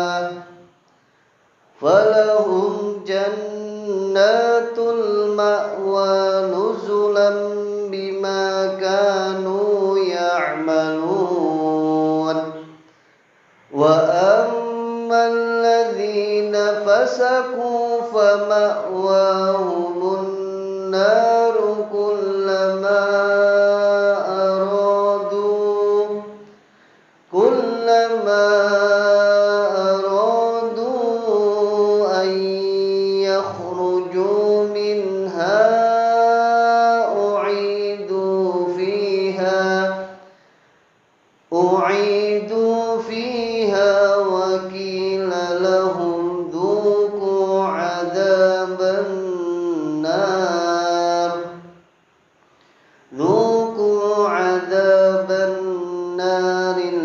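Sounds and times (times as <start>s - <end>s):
man chanting recitation: 0.0s - 0.7s, 1.7s - 12.9s, 13.6s - 26.6s, 27.3s - 40.4s, 41.5s - 51.8s, 53.1s - 57.0s.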